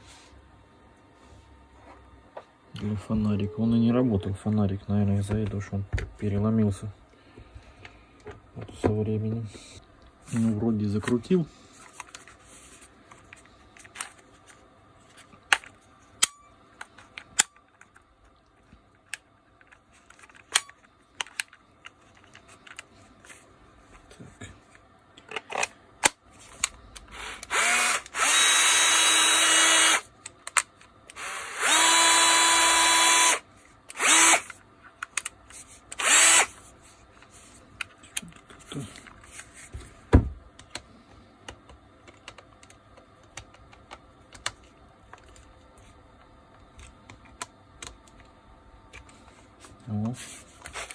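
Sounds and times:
cordless angle drill running: 0:27.1 - 0:30.0, 0:31.2 - 0:34.5, 0:36.0 - 0:36.6.

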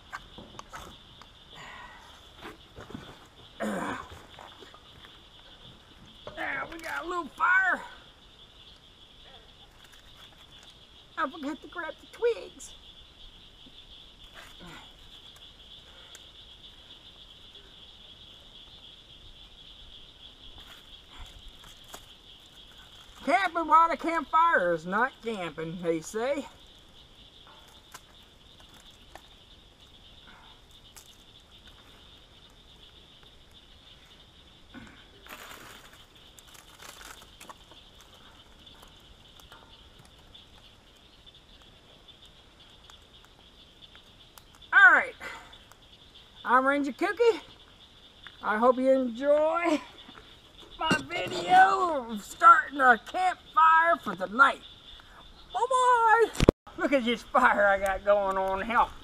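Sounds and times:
insect chorus trilling: 0:00.0 - 0:59.0
kindling rustling and snapping: 0:35.2 - 0:38.2.

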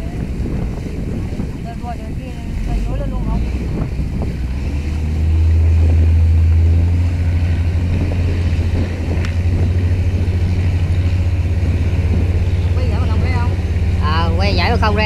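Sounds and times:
diesel boat engine throbbing: 0:00.0 - 0:15.0.

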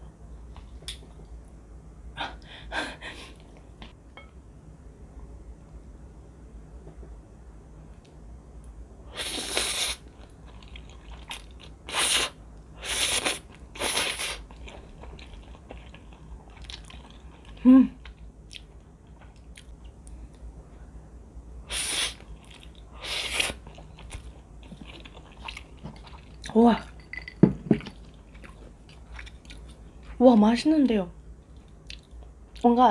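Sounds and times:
soft chewing and mouth clicks: 0:14.4 - 0:20.5, 0:22.2 - 0:27.0, 0:27.8 - 0:30.2, 0:31.4 - 0:32.7.

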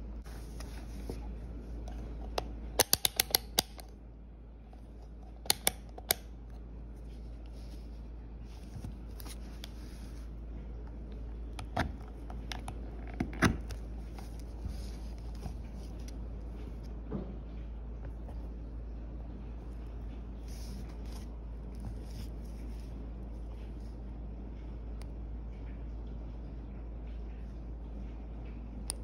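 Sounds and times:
low steady hum: 0:00.0 - 0:29.0
sharp plastic clicks: 0:02.4 - 0:03.9.

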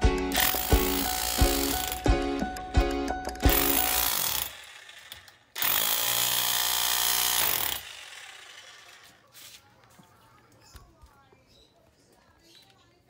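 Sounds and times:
chipping gun hammering concrete: 0:00.3 - 0:02.1, 0:03.4 - 0:08.9.

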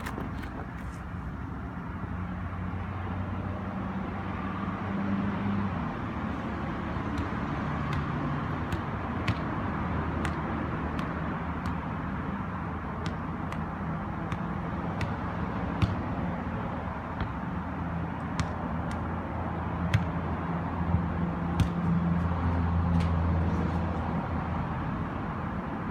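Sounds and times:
taps on soccer ball: 0:00.0 - 0:00.9, 0:07.0 - 0:11.9, 0:13.0 - 0:16.2, 0:18.2 - 0:19.2, 0:19.8 - 0:20.2, 0:20.9 - 0:22.0
road traffic rumble: 0:00.0 - 0:25.9.

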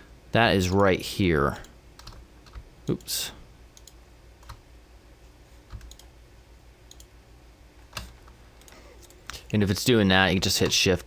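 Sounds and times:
mouse and keyboard clicks: 0:05.7 - 0:06.1.

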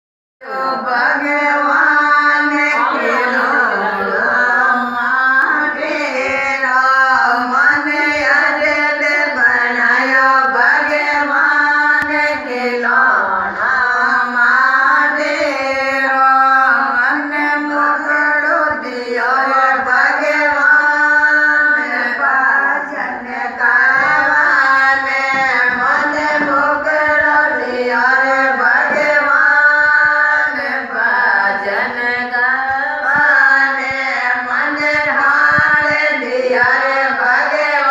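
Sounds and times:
women singing in unison: 0:00.4 - 0:37.9.

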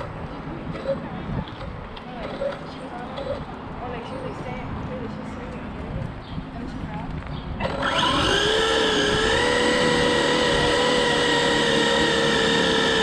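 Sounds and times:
electric motor whining: 0:07.6 - 0:13.0.

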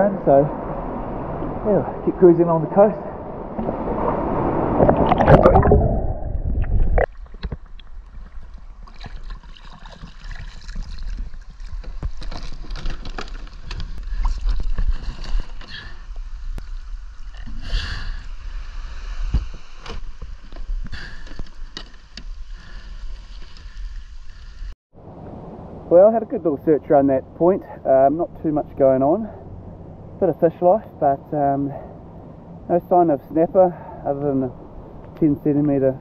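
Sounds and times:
low wind rumble: 0:00.0 - 0:36.0
water sloshing loudly: 0:03.5 - 0:15.6.

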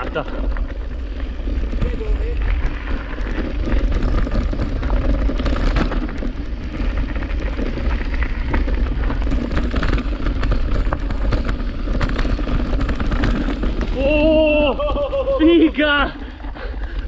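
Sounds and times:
bike rattling and clicking: 0:00.0 - 0:17.0
bike tyres rolling over stones: 0:00.0 - 0:17.0
wind buffeting microphone: 0:00.0 - 0:17.0.

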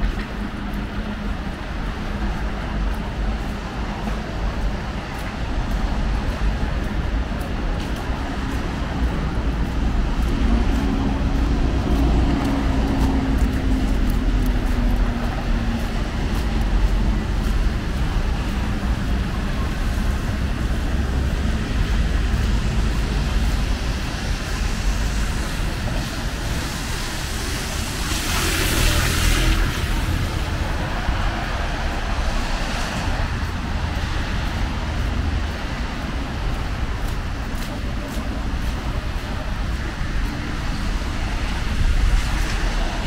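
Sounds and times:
car engines and tyres: 0:00.0 - 0:43.0
passing vehicle hiss: 0:16.9 - 0:35.0.

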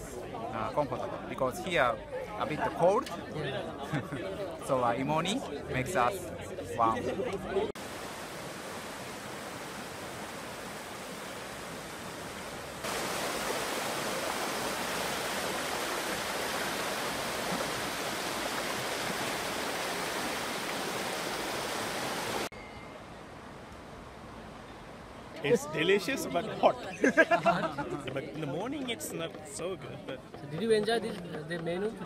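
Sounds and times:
water rushing over rapids: 0:07.8 - 0:22.5.

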